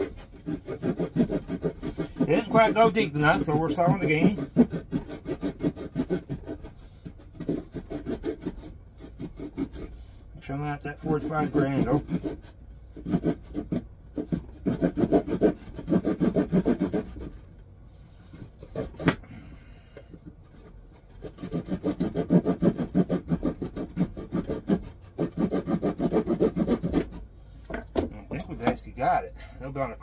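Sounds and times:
hand saw cutting wood: 0.0 - 19.5, 20.4 - 29.8.

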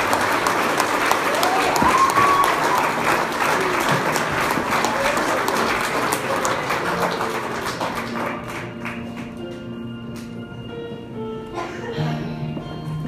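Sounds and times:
guests applauding: 0.0 - 9.7
music with sustained notes: 5.9 - 13.0.

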